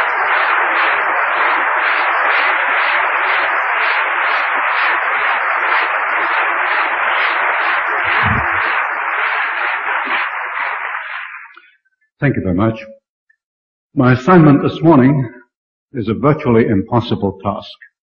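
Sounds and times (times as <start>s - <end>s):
audience applauding: 0.0s - 11.7s.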